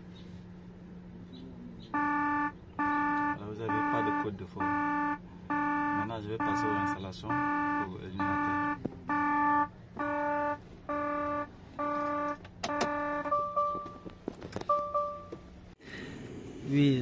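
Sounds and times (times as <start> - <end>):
warning buzzer beeping: 1.9 - 14.1.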